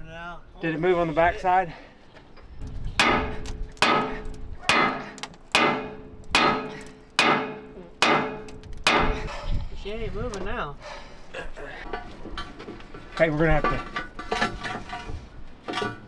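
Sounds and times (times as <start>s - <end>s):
sledgehammer striking steel: 3.0s - 9.3s.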